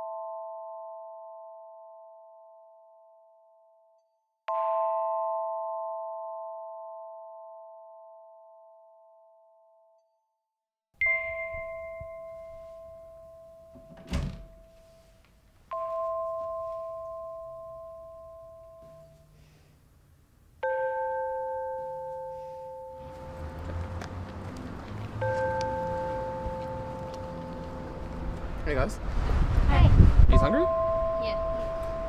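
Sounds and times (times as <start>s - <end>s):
struck chords ringing: 25.2s - 28.9s, 30.4s - 32.0s.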